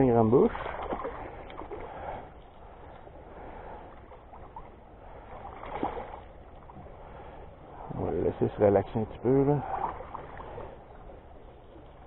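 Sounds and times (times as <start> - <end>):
water sloshing: 0.0 - 12.0
fish splashing and thrashing in water: 0.4 - 2.2, 5.3 - 6.4.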